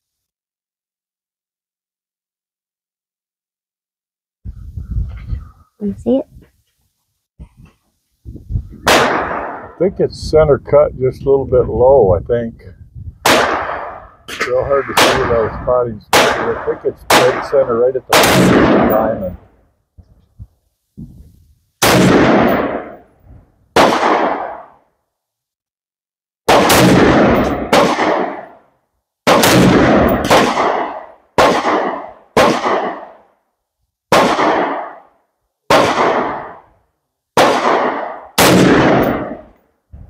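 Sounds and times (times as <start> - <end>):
rifle gunshots with echo: 8.8 - 9.9, 13.2 - 19.4, 21.8 - 23.2, 23.8 - 24.8, 26.5 - 28.6, 29.3 - 33.2, 34.1 - 35.1, 35.7 - 36.7, 37.4 - 39.6.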